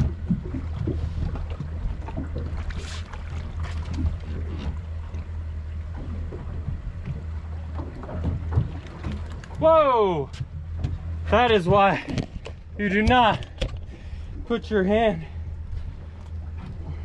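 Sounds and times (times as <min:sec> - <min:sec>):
water splash: 0:00.0 - 0:05.3, 0:05.9 - 0:10.3
outboard motors idling: 0:00.0 - 0:17.0
water slapping against hull: 0:00.0 - 0:17.0.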